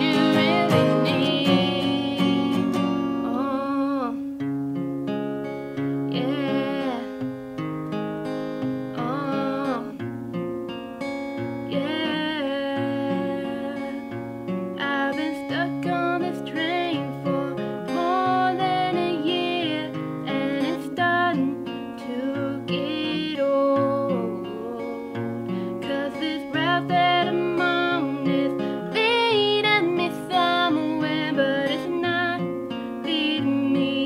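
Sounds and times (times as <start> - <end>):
woman singing: 0.0 - 4.4, 5.9 - 7.4, 8.6 - 10.1, 11.6 - 34.0
acoustic guitar: 0.0 - 34.0.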